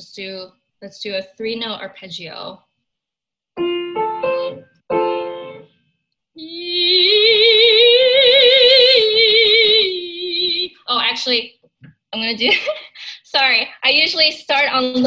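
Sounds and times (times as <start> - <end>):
piano notes and chord: 3.6 - 5.8
soprano singing vocal warm-up: 6.4 - 10.8.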